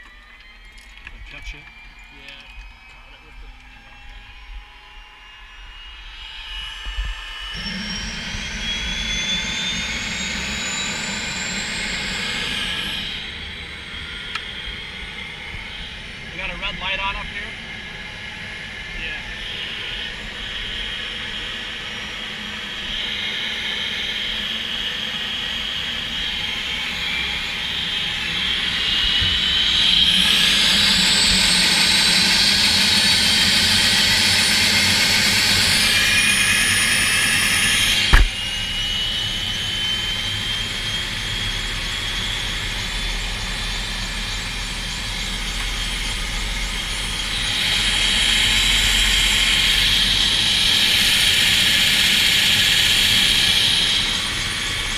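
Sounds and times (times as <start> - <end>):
helicopter turbine whine: 0.0 - 54.9
sharp click: 38.1 - 38.4.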